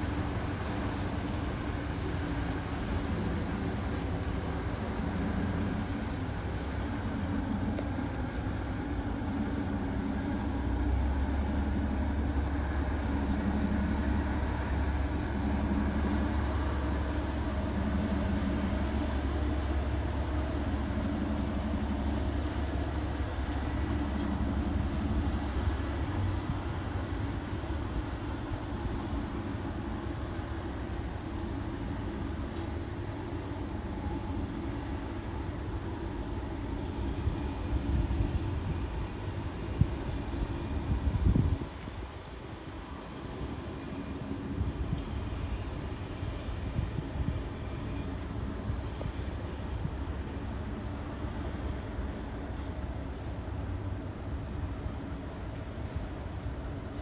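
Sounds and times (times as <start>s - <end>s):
deep drone: 0.0s - 42.2s
low engine rumble: 0.0s - 57.0s.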